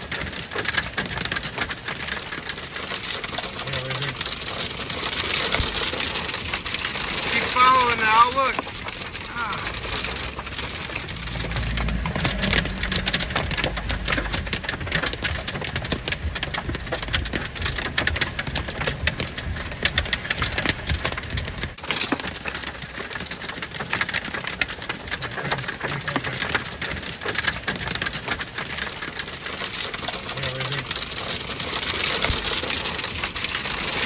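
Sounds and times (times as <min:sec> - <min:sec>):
hail and rain on car roof: 0:00.0 - 0:34.0
low rumble: 0:08.7 - 0:18.6.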